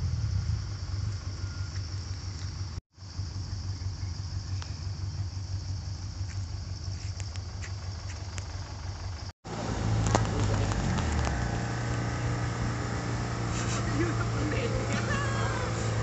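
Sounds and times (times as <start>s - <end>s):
truck engine idling: 0.6s - 16.0s
louder engine running: 8.4s - 16.0s.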